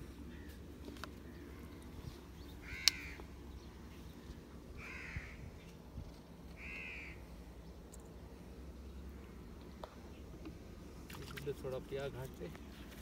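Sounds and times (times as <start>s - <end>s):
crow cawing: 2.6s - 3.2s, 4.8s - 5.4s, 6.6s - 7.2s.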